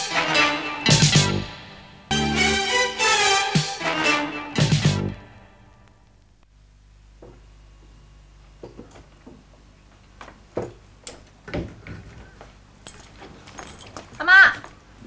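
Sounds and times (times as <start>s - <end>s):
footsteps on tiled floor: 8.6s - 15.0s.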